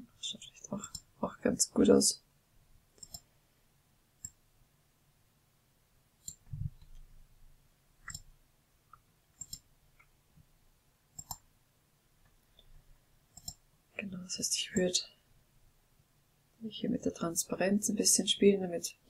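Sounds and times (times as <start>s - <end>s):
computer mouse clicks: 0.8s - 1.1s, 3.0s - 3.3s, 4.2s - 4.4s, 6.2s - 7.0s, 8.0s - 8.3s, 8.9s - 10.1s, 11.1s - 11.5s, 13.3s - 13.6s.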